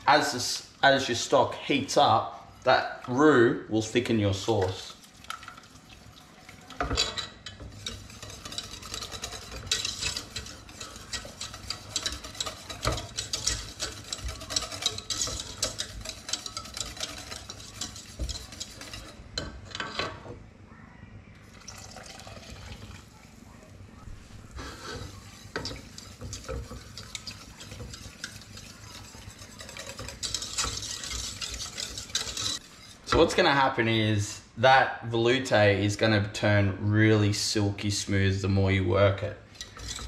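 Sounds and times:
utensil scraping saucepan: 0.0s - 20.4s, 24.0s - 33.8s, 39.4s - 40.0s.

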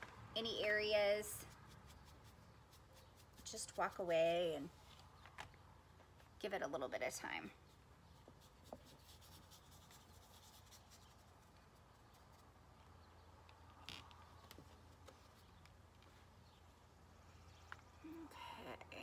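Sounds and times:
paintbrush strokes on canvas: 1.4s - 5.0s, 7.7s - 12.6s.

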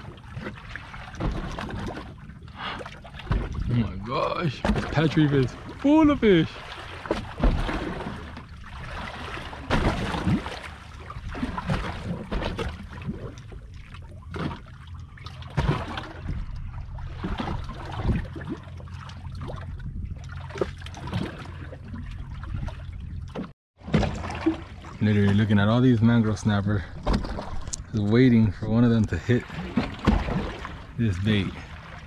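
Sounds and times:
water lapping against boat hull: 0.0s - 32.0s.

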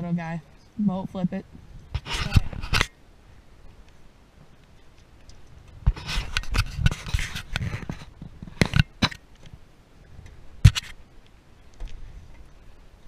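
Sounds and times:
camera handling scraping: 1.9s - 2.9s, 5.9s - 9.2s, 10.6s - 11.0s.

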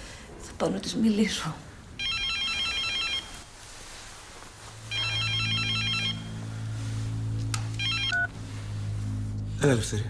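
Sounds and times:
low steady hum: 0.0s - 10.0s
telephone ringtone trilling: 2.0s - 3.4s, 4.9s - 6.4s, 7.8s - 8.3s.

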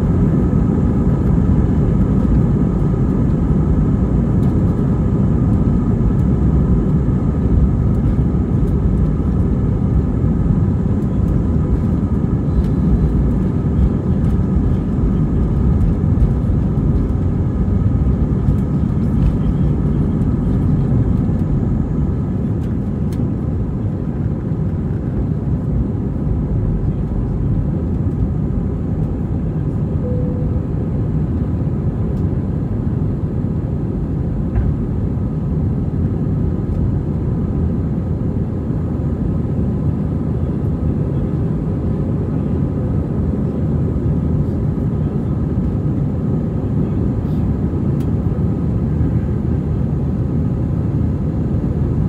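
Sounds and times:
jet engines rumbling: 0.0s - 52.0s
faint whining tones: 30.0s - 31.2s.

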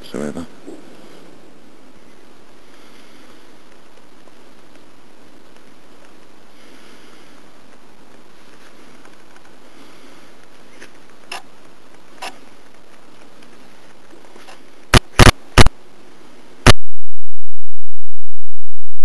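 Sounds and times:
quiet steady hiss: 0.0s - 19.0s
loud sharp clicks: 14.9s - 15.8s.

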